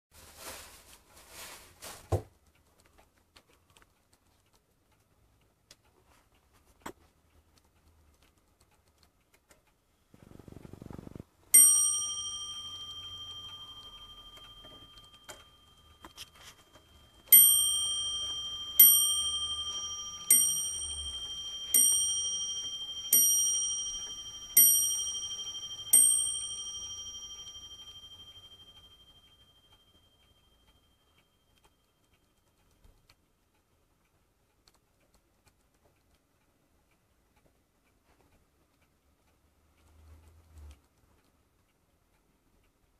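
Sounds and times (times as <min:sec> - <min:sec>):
handling rustle: 0:00.2 - 0:02.3
wall clock bell striking: 0:11.5 - 0:31.0.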